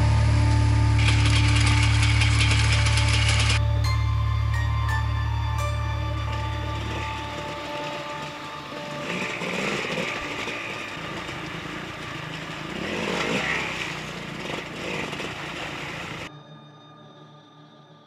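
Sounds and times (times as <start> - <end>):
dirt bike engine revving: 0.0 - 3.6, 6.2 - 16.3
background music: 0.0 - 18.0.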